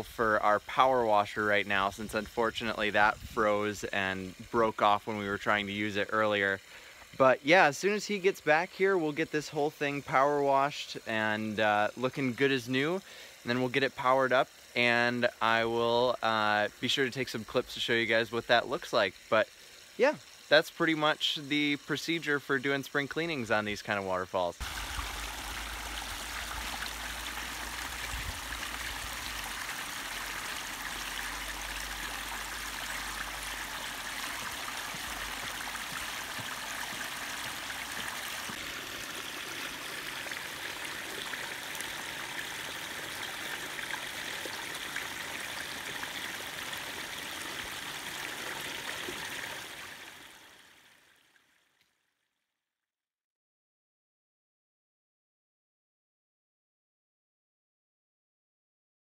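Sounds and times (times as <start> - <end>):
water splashing down rocks: 24.6 - 50.1.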